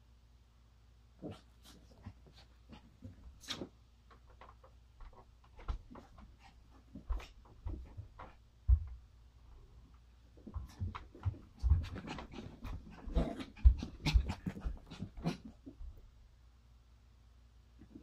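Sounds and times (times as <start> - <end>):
rustles and scratches on blankets: 1.2 - 3.8.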